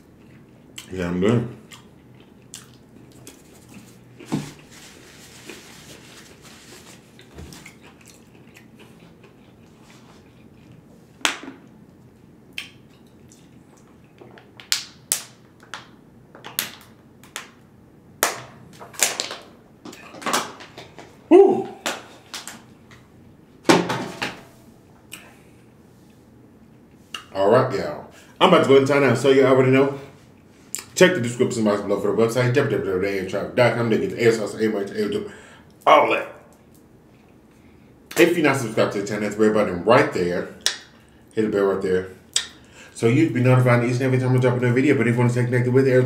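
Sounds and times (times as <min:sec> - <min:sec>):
quiet chewing: 0:00.0 - 0:01.0, 0:01.6 - 0:14.4.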